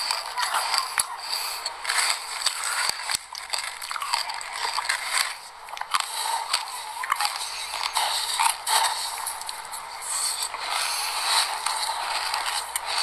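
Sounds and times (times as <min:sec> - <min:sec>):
crunchy chewing: 0:00.0 - 0:13.0.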